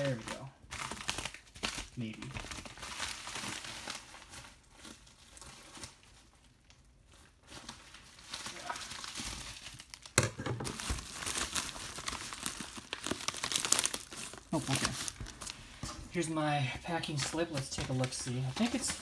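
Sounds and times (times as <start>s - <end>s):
sharp plastic crackle: 0.0s - 15.8s, 17.0s - 19.0s
plastic mailer crinkling: 7.4s - 19.0s.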